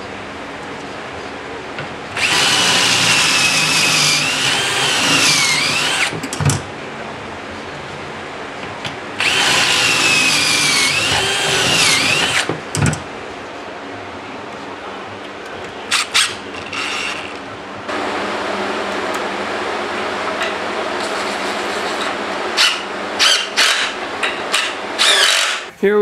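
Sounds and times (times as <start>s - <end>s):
cordless drill whining: 2.2s - 6.2s, 9.2s - 12.5s, 15.9s - 17.4s, 25.0s - 25.7s.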